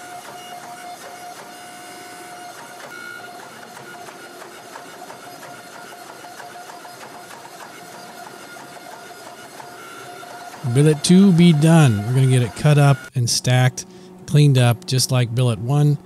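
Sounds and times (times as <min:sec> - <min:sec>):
hydraulic pump whine: 0:00.0 - 0:06.2, 0:07.7 - 0:14.7.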